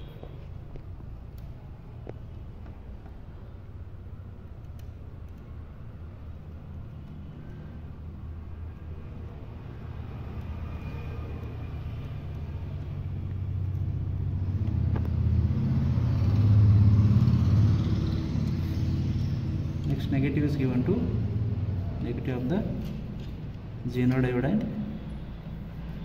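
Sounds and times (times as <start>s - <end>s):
passing vehicle engine rumble: 7.2s - 26.0s.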